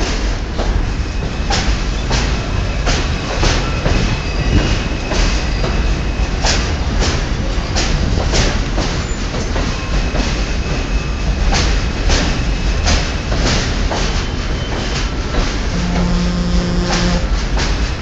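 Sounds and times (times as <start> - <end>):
train wheels clacking on rail joints: 0.0 - 15.8, 16.9 - 18.0
subway train rumbling past: 0.0 - 18.0
steady low hum: 15.7 - 17.4.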